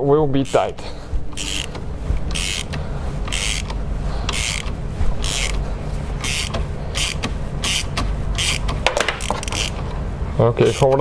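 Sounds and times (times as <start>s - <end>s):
ratchet pawl clicking: 1.3s - 5.6s, 6.2s - 9.8s, 10.6s - 11.0s.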